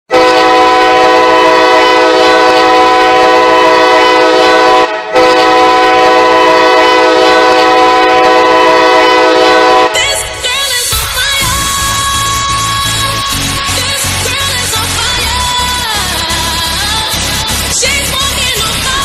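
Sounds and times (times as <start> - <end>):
locomotive air horn chord: 0.1 - 10.6.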